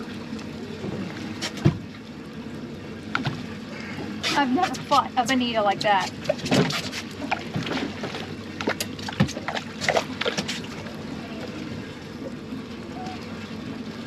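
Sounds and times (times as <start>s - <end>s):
water sloshing around boat: 0.0s - 14.0s
knocks and clatters on boat: 0.6s - 2.0s, 3.0s - 11.0s.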